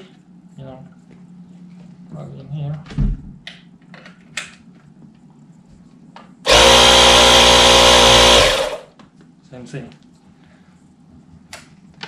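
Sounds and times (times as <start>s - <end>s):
tire inflator compressor whine: 6.5s - 8.9s.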